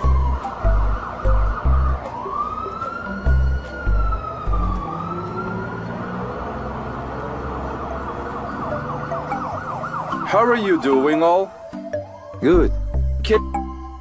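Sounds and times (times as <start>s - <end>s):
cartoon music with pulsing bass: 0.0s - 2.3s, 3.2s - 4.8s, 11.9s - 14.0s
police siren wailing: 0.0s - 12.8s.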